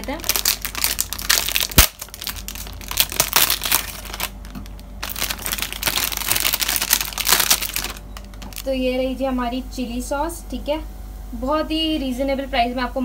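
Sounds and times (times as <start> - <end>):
plastic film crinkling: 0.0 - 8.7.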